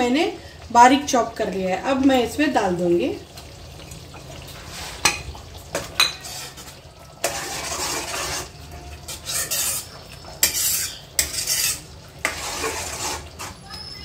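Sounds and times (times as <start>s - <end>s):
spoon scraping thick gravy: 6.2s - 13.6s.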